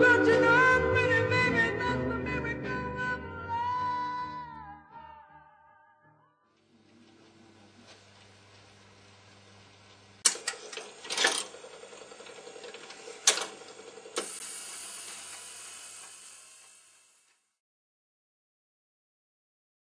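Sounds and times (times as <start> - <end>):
steady whirring hiss: 7.0 - 17.3
mechanical clicks and clunks: 10.2 - 16.2.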